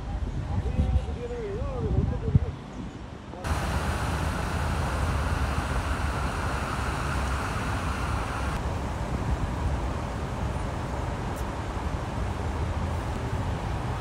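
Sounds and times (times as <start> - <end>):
low rumble of engines: 2.8 - 14.0
tyres hissing through water: 3.5 - 8.6.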